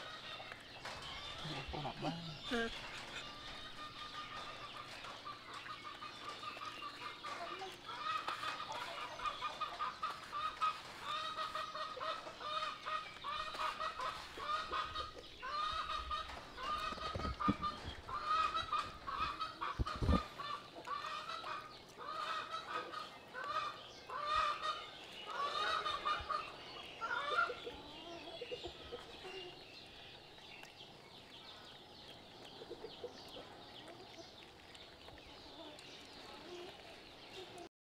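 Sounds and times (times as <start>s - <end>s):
fowl clucking: 1.4s - 29.4s.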